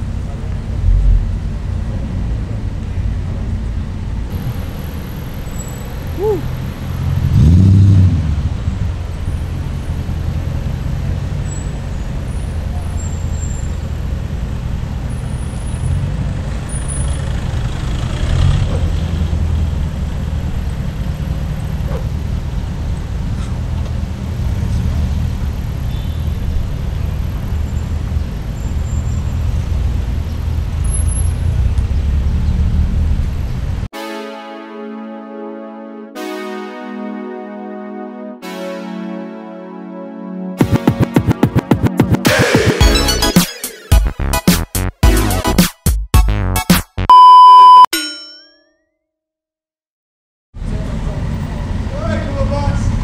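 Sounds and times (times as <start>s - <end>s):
cars driving past: 0.0s - 33.9s
engine revving: 4.3s - 13.0s, 13.9s - 28.4s.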